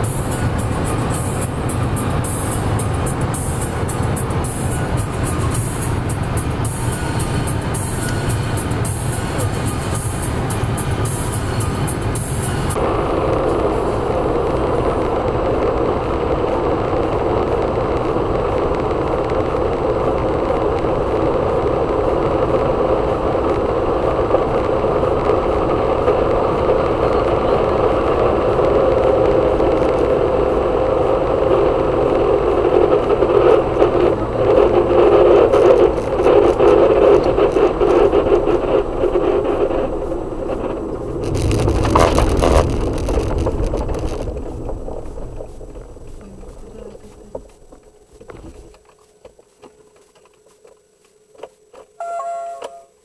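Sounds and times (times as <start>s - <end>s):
car engine knocking and rattling: 0.0s - 49.8s.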